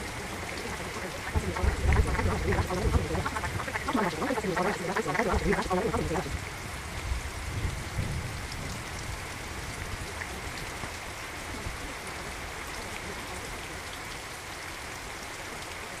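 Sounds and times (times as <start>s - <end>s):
rain drop ticks: 0.0s - 6.4s
steady rain hiss: 0.0s - 16.0s.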